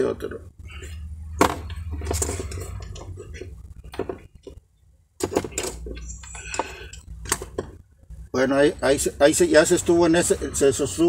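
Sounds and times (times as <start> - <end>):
small metal parts clinking: 5.2 - 7.7.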